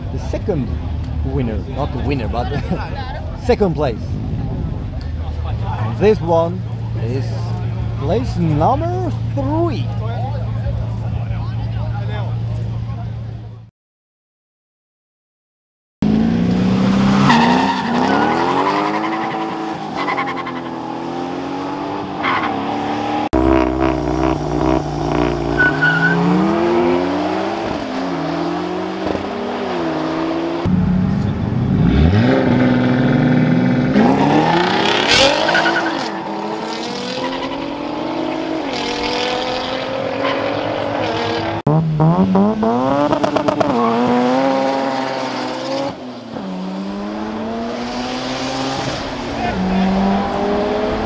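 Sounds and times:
race car engines revving: 0.0 - 13.7, 16.0 - 51.0.

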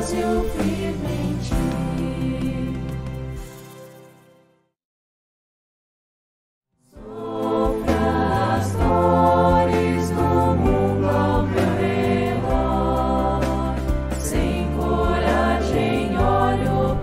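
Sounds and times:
people singing: 0.0 - 3.0, 7.0 - 17.0.

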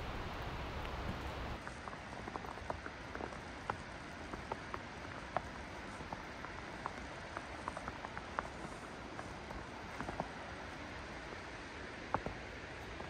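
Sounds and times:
water dripping: 0.0 - 1.6
steady soft hiss: 0.0 - 13.0.

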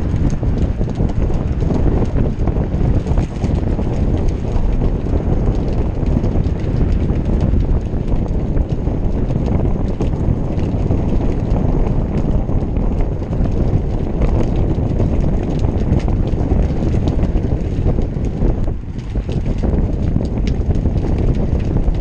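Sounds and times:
light clicks and rattles: 0.0 - 22.0
wind on microphone: 0.0 - 22.0.

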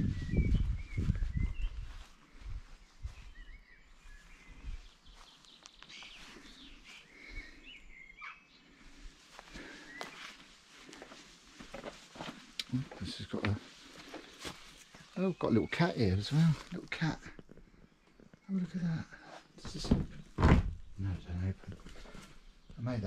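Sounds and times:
faint footsteps: 0.0 - 7.9, 8.7 - 15.2
birds chirping: 0.0 - 23.0.

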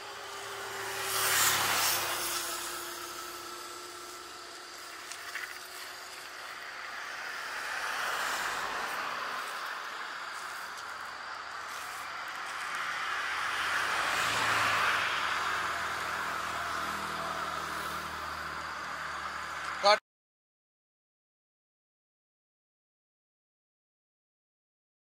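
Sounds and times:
vehicles passing by: 0.0 - 20.0.

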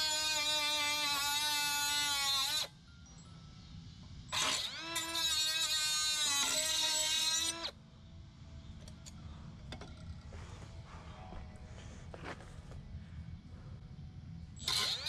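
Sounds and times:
cut-off tool whining: 0.0 - 2.8, 4.3 - 7.8, 14.6 - 15.0.

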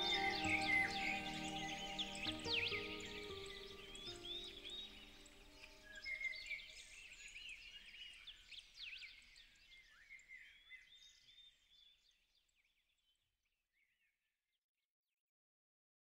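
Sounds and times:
songbirds chirping and trilling: 0.0 - 12.0.

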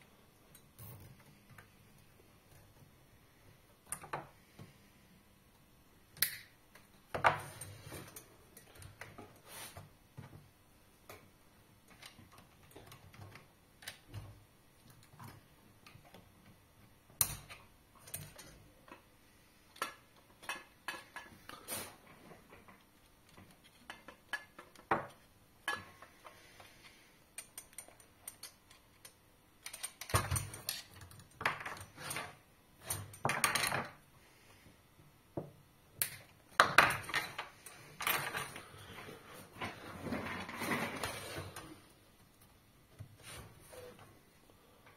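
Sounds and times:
plastic and metal parts clicking: 27.4 - 31.9.

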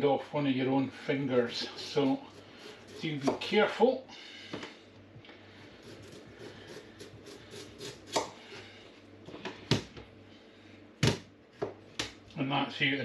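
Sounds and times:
knife cutting vegetable skin: 1.6 - 3.5, 5.8 - 8.4.

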